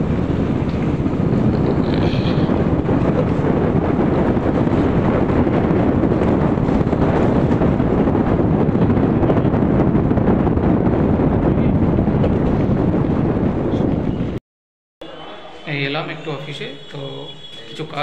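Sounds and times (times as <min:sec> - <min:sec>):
motorcycle running: 0:00.0 - 0:14.4
wind buffeting microphone: 0:00.0 - 0:14.4.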